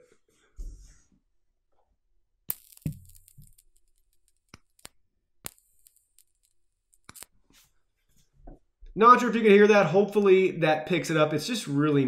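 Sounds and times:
high-pitched electric arc hiss: 2.5s - 7.3s.

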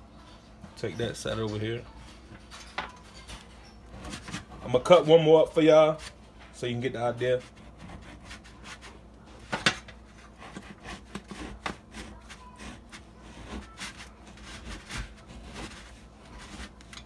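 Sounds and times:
knife sawing through frozen bread: 7.2s - 9.0s, 10.1s - 17.0s.

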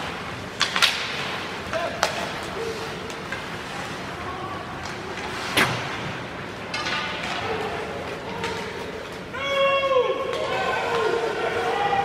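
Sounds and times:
hockey stick or puck crack: 0.0s - 3.8s.

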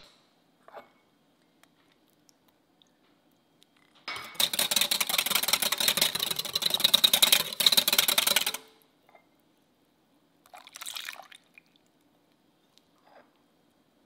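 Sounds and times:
whisk clicking against glass bowl: 4.1s - 8.7s
milk pouring into bowl: 10.4s - 11.9s.

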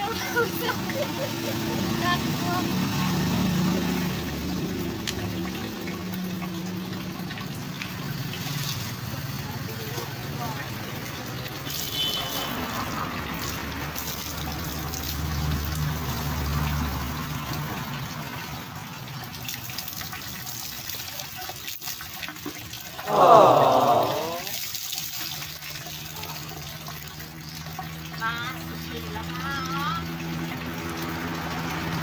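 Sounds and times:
water trickling and dripping: 0.0s - 23.0s, 24.4s - 32.0s
water pouring and splashing: 0.0s - 32.0s
short loud call: 23.0s - 24.5s.

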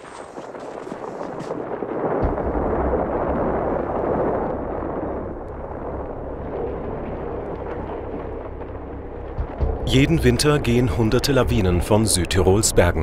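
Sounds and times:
avalanche rumbling: 0.0s - 13.0s
low blast thud: 2.2s - 5.0s, 9.3s - 10.9s.

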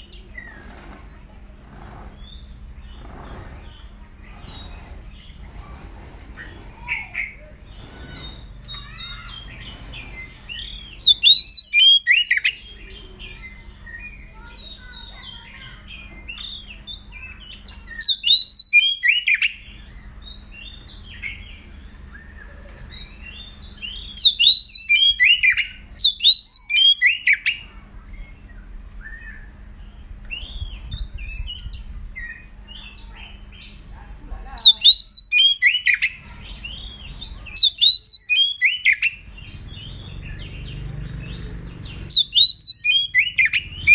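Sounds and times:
bird singing whistled notes: 6.9s - 15.1s, 16.0s - 27.6s, 28.2s - 33.8s, 34.6s - 43.9s.

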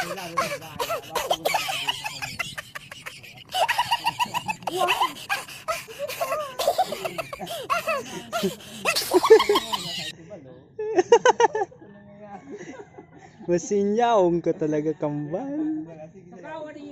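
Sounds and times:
men laughing and chattering: 0.0s - 10.2s, 10.8s - 13.7s.

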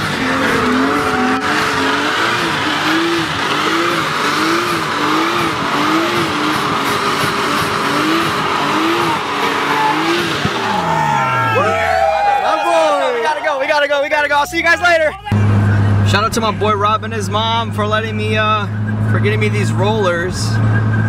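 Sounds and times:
car engine revving: 0.0s - 12.4s, 14.2s - 21.0s
tyres screeching: 0.0s - 12.5s.

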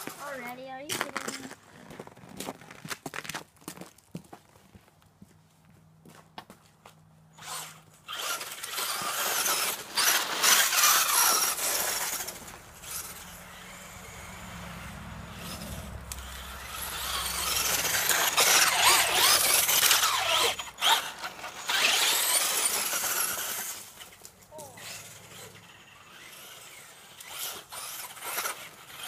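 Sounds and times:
toy car motor whining: 7.4s - 29.0s.

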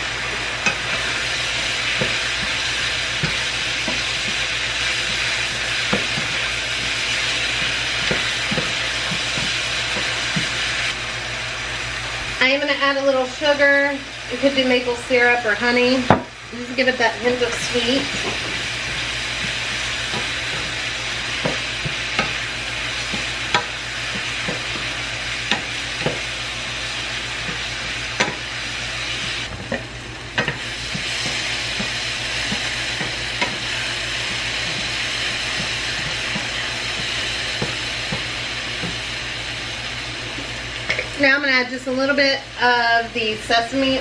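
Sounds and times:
sausages sizzling in a frying pan: 0.0s - 44.0s
utensil tapping a pan: 21.4s - 22.4s, 23.0s - 26.2s.

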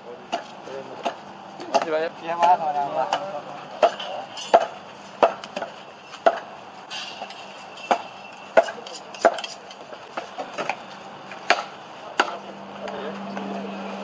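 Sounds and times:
cleaver chopping meat and bone: 0.3s - 6.4s, 7.9s - 9.7s, 11.4s - 12.4s.

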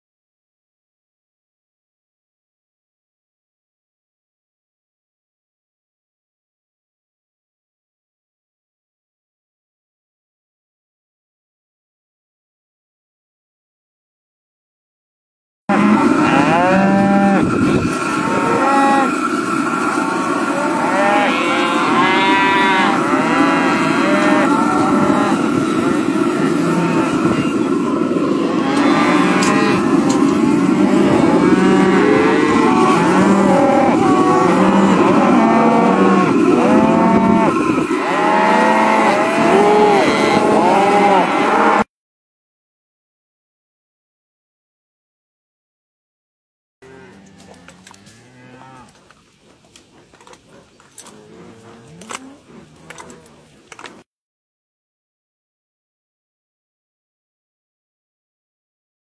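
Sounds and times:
calves bawling: 28.5s - 41.8s, 47.0s - 53.9s.

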